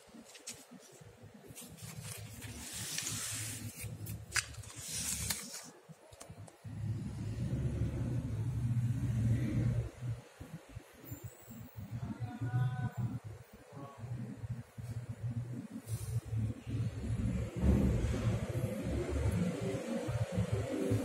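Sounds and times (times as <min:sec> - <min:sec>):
paper crinkling: 0:00.0 - 0:06.5
book pages rustling: 0:00.0 - 0:06.6.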